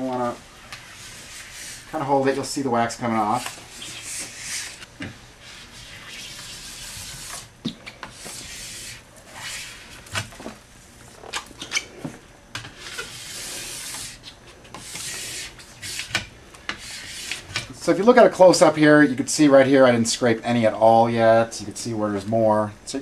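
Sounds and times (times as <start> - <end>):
wax scraper rasping on ski: 0.2 - 2.4, 3.0 - 7.5, 12.8 - 16.2, 16.8 - 17.6.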